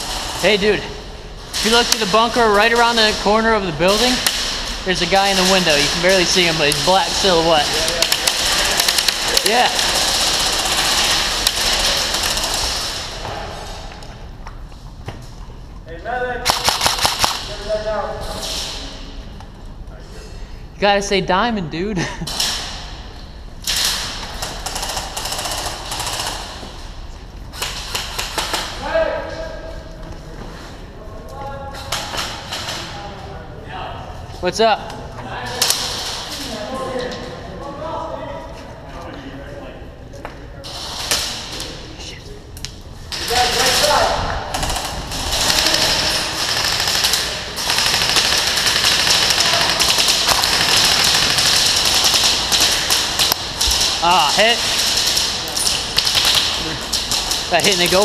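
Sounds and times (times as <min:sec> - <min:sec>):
airsoft guns firing: 0:03.8 - 0:13.1, 0:16.4 - 0:17.6, 0:23.6 - 0:26.6, 0:43.1 - 0:58.0
airsoft gun firing full auto: 0:16.4 - 0:17.5, 0:44.6 - 0:53.9.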